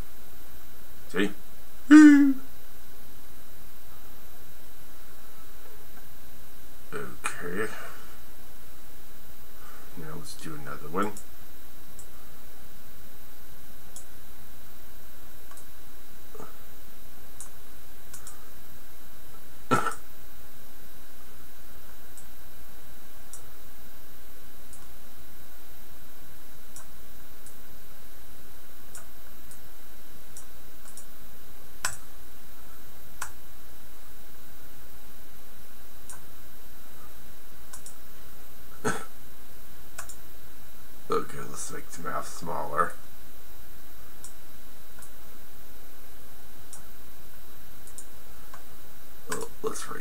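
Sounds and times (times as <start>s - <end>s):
low hum: 0.0s - 50.0s
person clearing throat: 1.9s - 2.4s, 19.7s - 20.0s, 38.8s - 39.1s
computer mouse clicking: 17.4s - 18.4s, 30.4s - 31.1s, 31.8s - 32.0s, 37.7s - 38.0s, 40.0s - 40.2s, 47.8s - 48.6s.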